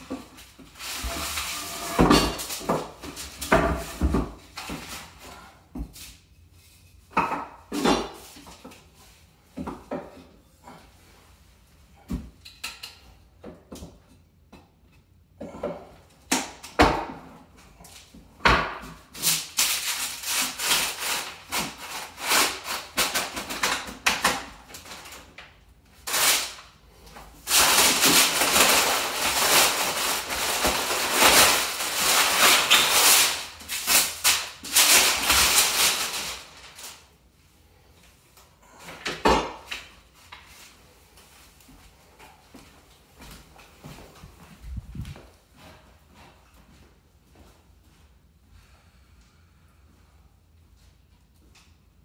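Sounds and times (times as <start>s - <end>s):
crumpled paper rustling: 19.2s - 25.4s, 26.0s - 26.6s, 27.4s - 37.1s.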